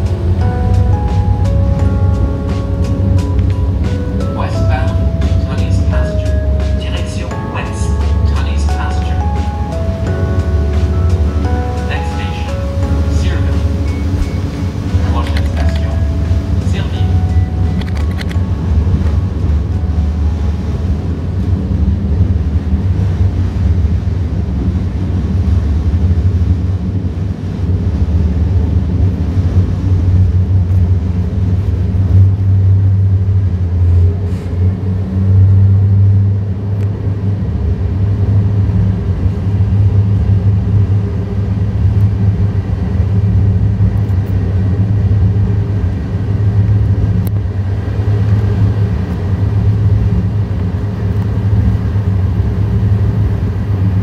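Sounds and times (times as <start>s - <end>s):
train rumbling from inside: 0.0s - 54.0s.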